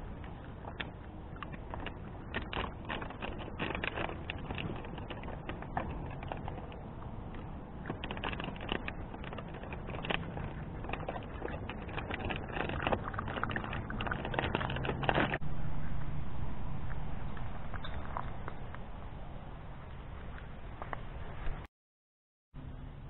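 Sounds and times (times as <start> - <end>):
dog lapping water: 0.0 - 15.4.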